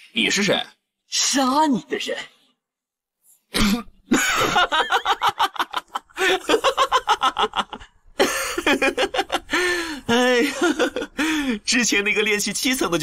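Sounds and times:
man laughing scornfully: 0:04.1 - 0:11.2.

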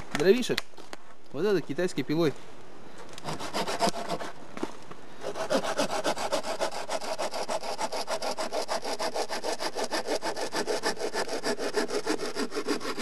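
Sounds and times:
hand saw cutting wood: 0:03.2 - 0:04.4, 0:05.2 - 0:13.0.

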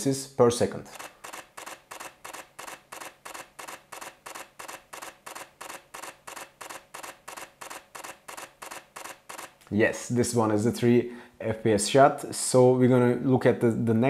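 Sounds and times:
camera shutter clicks: 0:00.9 - 0:09.6.

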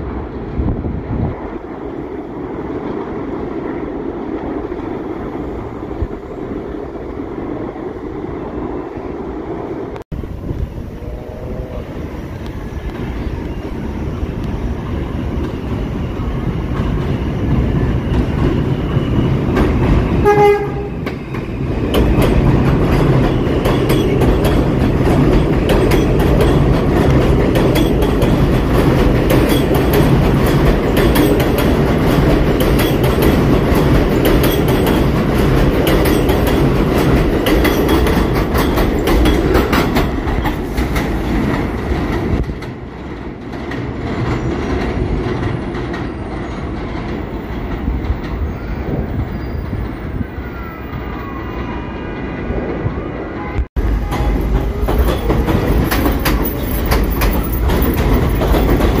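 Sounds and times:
distant train on elevated track: 0:00.0 - 0:59.0
train wheels clattering over rail joints: 0:16.6 - 0:48.6, 0:53.8 - 0:59.0
train horn blast: 0:20.2 - 0:21.0.

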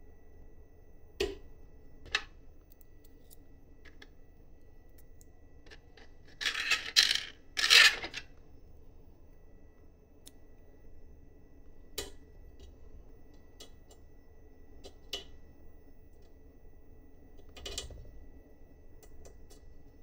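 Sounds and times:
low steady hum: 0:00.0 - 0:20.0
small parts and tools clicking: 0:04.9 - 0:08.3.

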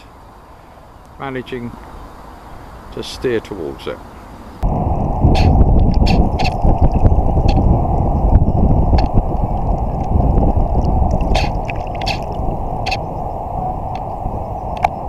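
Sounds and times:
muffled low wind rumble: 0:00.0 - 0:15.0
sharp ticks: 0:05.4 - 0:07.6, 0:11.1 - 0:13.0.

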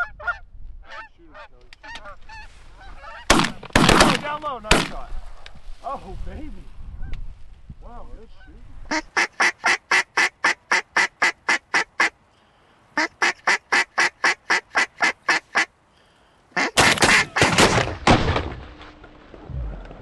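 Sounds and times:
shotgun blasts: 0:03.3 - 0:05.1, 0:16.8 - 0:18.8
duck call quacks: 0:08.9 - 0:12.2, 0:13.0 - 0:15.7, 0:16.6 - 0:17.6.

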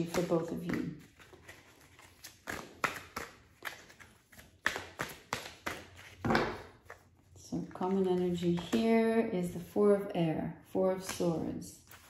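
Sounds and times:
cards being shuffled: 0:00.0 - 0:07.2.

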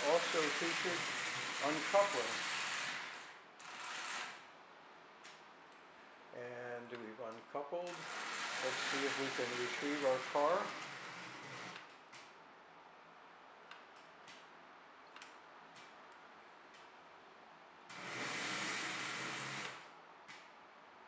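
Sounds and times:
toy train wheels clicking: 0:00.0 - 0:04.4
toy train motor whirring: 0:00.0 - 0:04.5, 0:07.9 - 0:11.9, 0:17.9 - 0:19.8.

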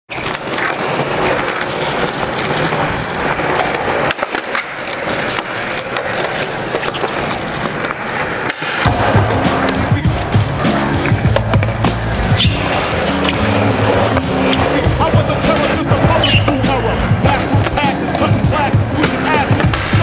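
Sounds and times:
skateboard clacks: 0:00.1 - 0:20.0
skateboard wheels rolling on concrete: 0:00.1 - 0:20.0
music with deep bass line: 0:08.9 - 0:20.0.

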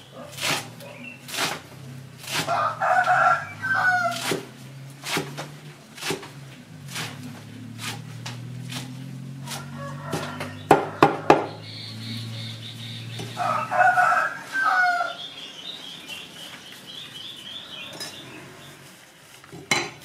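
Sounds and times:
rooster crowing: 0:02.4 - 0:04.4, 0:09.4 - 0:15.4
cleaver chopping on wooden block: 0:07.8 - 0:11.6.

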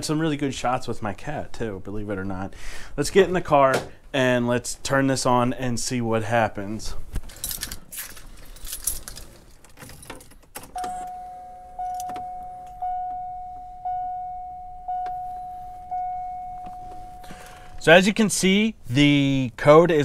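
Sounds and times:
keys jangling: 0:07.2 - 0:12.8
dashboard warning chime: 0:10.8 - 0:17.9.

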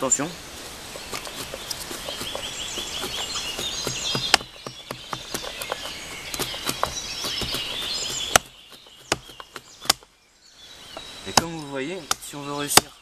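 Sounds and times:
songbirds singing: 0:00.0 - 0:13.0
blade cutting into wood: 0:01.0 - 0:10.0.

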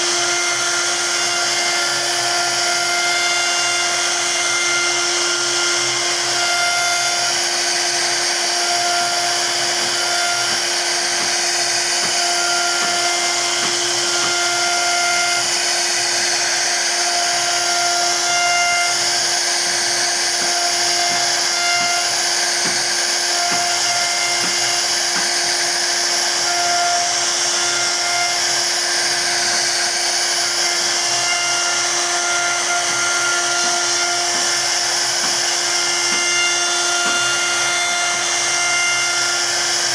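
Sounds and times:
wood router whining while cutting: 0:00.0 - 0:39.9.

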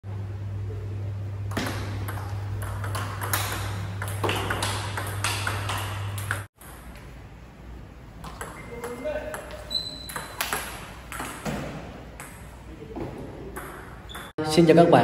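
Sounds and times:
table tennis ball hits: 0:01.5 - 0:07.0, 0:08.2 - 0:12.5, 0:13.5 - 0:14.3.

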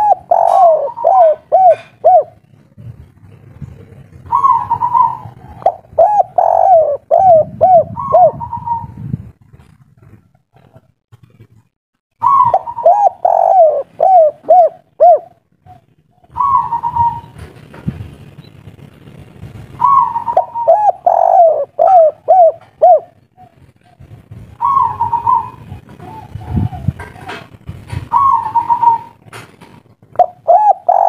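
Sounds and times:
dove cooing: 0:00.0 - 0:09.1, 0:12.2 - 0:17.5, 0:19.8 - 0:29.2, 0:30.1 - 0:31.0.

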